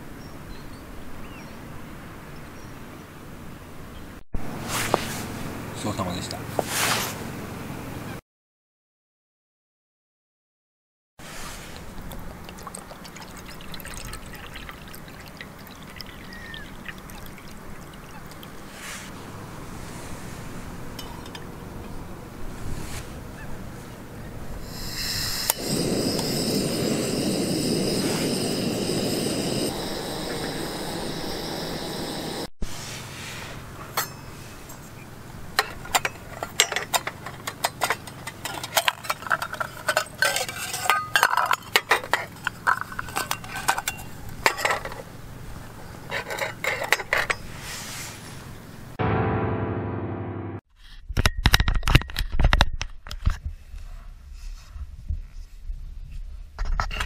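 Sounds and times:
metal cups clinking together: 21.0s - 21.5s, 35.6s - 45.1s
gas stove burner rushing: 24.6s - 32.5s.

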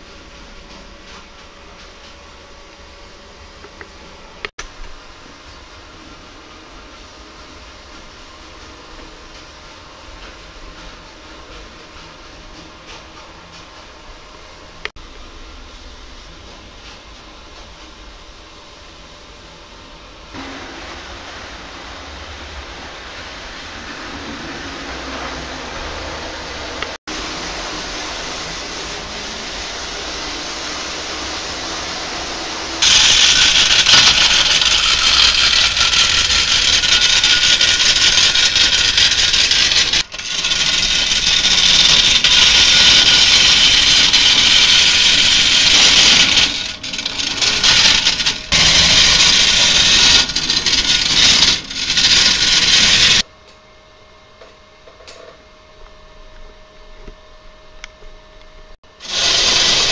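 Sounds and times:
steady hiss: 20.2s - 53.2s
clockwork toy train rattling: 32.8s - 53.2s, 59.0s - 59.9s.

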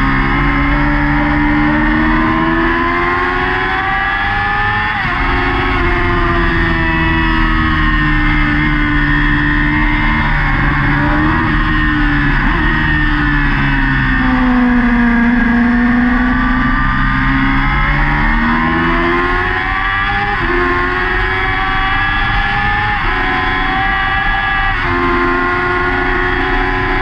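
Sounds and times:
motorcycle engine at racing revs: 0.0s - 27.0s
wind rush: 4.8s - 15.4s.

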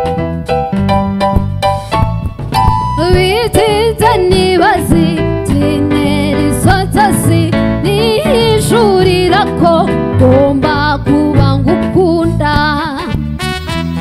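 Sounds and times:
live band playing: 0.0s - 14.0s
woman singing: 3.0s - 13.2s.

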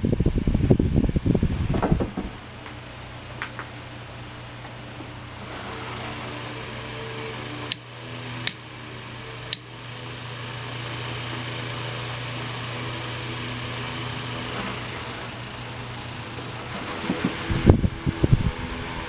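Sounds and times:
table fan running: 0.0s - 19.0s
sharp clicks of fan handling: 1.4s - 3.8s, 7.7s - 8.6s, 9.5s - 9.7s.

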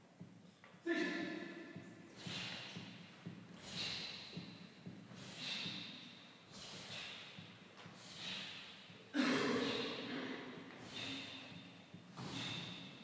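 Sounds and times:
people exhaling sharply in unison: 2.2s - 2.8s, 3.6s - 4.3s, 5.1s - 11.6s, 12.2s - 12.9s.

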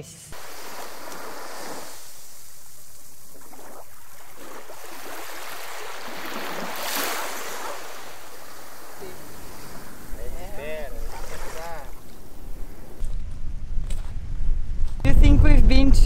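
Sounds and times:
small waves washing over sand: 0.4s - 13.0s.

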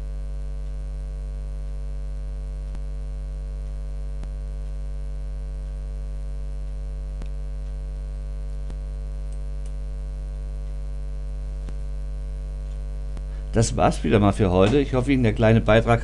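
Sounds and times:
electrical mains hum: 0.0s - 16.0s
faint clicks: 8.6s - 9.8s.

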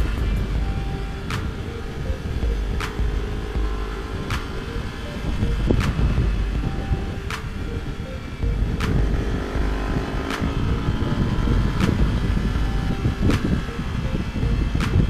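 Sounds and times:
motorcycle engine running: 0.0s - 15.0s
wind rumbling on microphone: 0.0s - 15.0s
sharp tick: 7.3s - 7.6s, 8.8s - 9.1s, 10.3s - 11.2s.

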